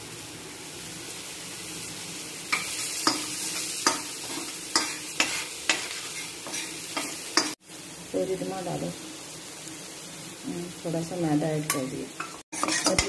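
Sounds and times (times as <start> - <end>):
garlic sizzling in butter: 0.0 - 13.0
spoon clinking against pan: 11.7 - 13.0.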